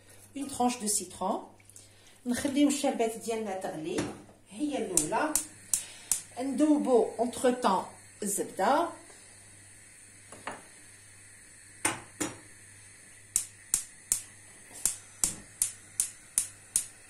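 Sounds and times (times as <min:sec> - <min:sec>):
spark igniter clicking: 0:04.8 - 0:06.9, 0:11.8 - 0:17.0.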